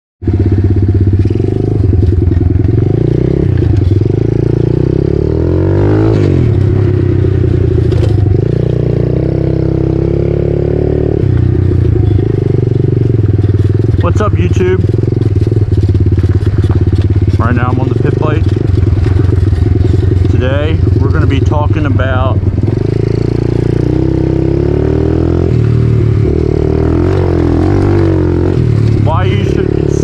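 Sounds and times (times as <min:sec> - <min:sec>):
small motorbike engine revving: 0:00.3 - 0:30.0.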